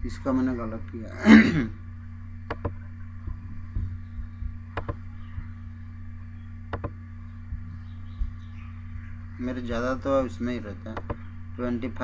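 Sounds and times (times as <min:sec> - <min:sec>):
electrical hum: 0:00.0 - 0:12.0
computer mouse clicks: 0:04.8 - 0:05.0, 0:06.7 - 0:07.0.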